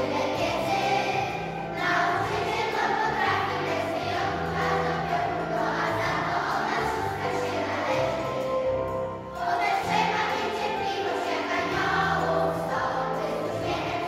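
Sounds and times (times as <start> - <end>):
children's choir singing: 0.0 - 14.0
low held accompaniment notes: 0.0 - 14.0.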